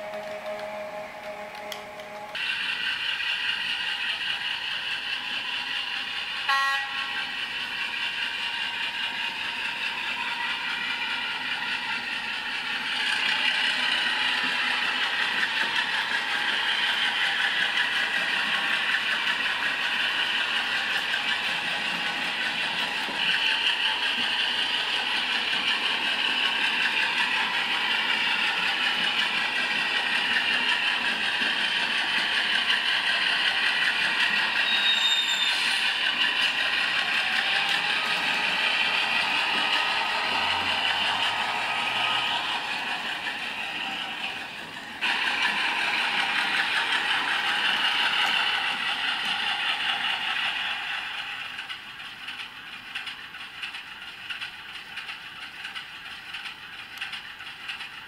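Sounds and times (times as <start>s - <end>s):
held tone: 0.0s - 2.4s, 6.5s - 7.4s
train horn toot: 0.0s - 2.4s, 6.5s - 7.4s
train rumble and rattle: 0.0s - 58.0s.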